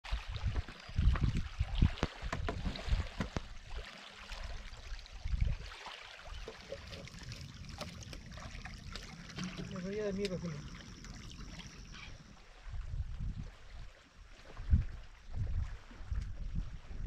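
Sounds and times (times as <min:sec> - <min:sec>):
wind rumbling on microphone: 0:00.1 - 0:03.8, 0:04.4 - 0:17.0
small waves lapping on pebbles: 0:00.1 - 0:12.8.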